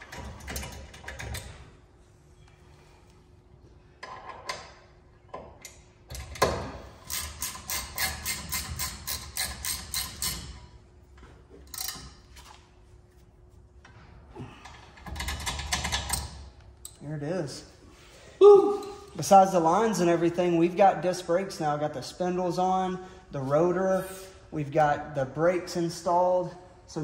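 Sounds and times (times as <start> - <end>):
ratchet wrench clicking: 7.0 - 10.6.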